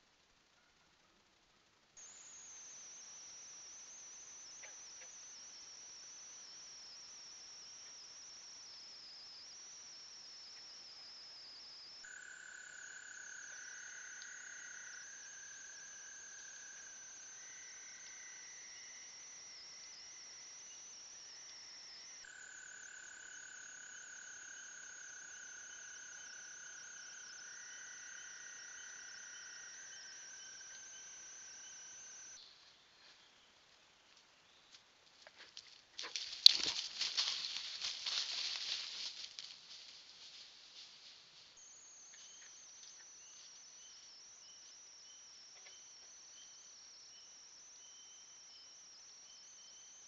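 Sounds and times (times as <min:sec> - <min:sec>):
lower frog trills: 0:02.0 - 0:32.6
high-pitched insect trilling: 0:02.0 - 0:32.7, 0:35.6 - 0:50.0.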